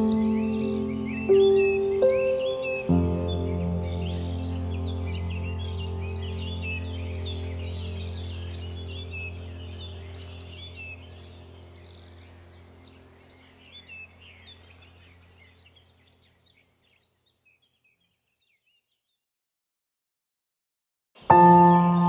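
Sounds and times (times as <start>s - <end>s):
small birds chirping: 0.0s - 19.4s, 21.2s - 22.0s
low steady hum: 3.0s - 16.2s.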